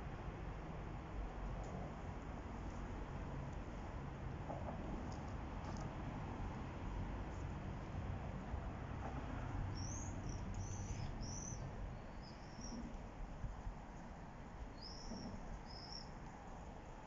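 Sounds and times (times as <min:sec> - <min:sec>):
small bird chirping: 0:09.7 - 0:12.8, 0:14.7 - 0:16.1.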